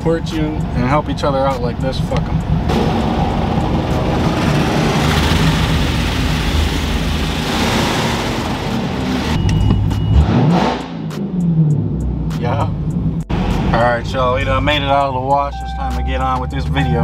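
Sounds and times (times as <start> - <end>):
car engine idling: 0.0 - 10.1
water jets pounding car: 2.3 - 9.4.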